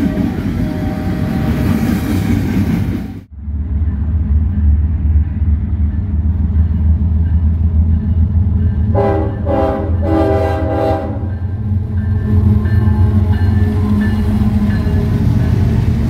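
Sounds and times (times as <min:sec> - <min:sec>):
locomotive engine rumble: 0:00.0 - 0:16.0
train air horn blasts: 0:08.9 - 0:11.4.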